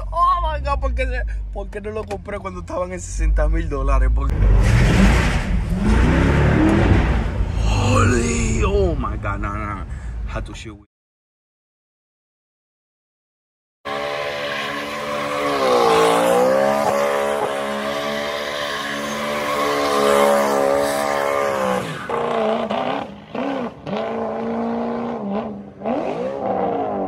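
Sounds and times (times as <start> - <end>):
car engine revving: 4.2 - 9.6, 13.9 - 27.0.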